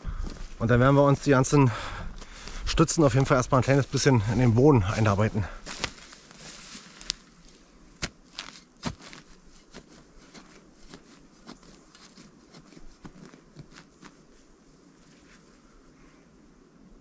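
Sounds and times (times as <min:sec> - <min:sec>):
spade scraping and crunching soil: 0:02.7 - 0:14.2.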